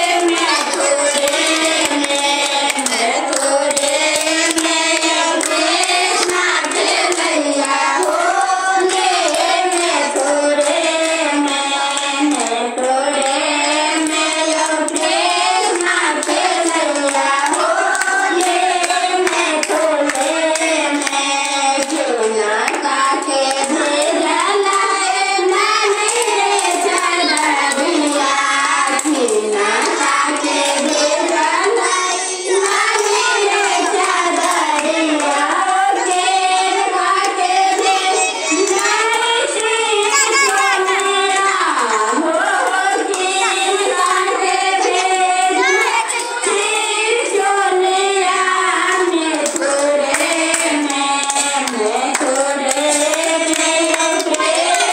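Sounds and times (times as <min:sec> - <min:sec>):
rhythmic hand clapping: 0:00.0 - 0:54.9
women singing devotional song: 0:00.0 - 0:54.9.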